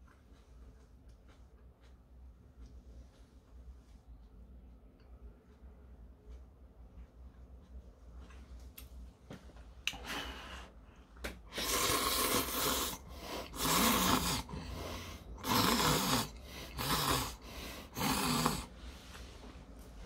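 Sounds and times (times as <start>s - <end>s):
man slurping noodles: 11.5s - 18.7s.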